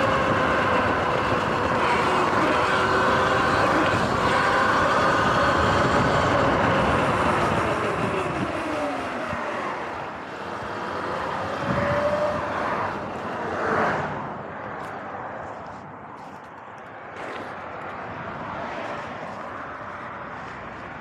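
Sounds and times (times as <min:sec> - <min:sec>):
electric motor whine: 0:00.0 - 0:13.8
wind rushing over microphone: 0:00.0 - 0:16.2
cars passing: 0:00.0 - 0:21.0.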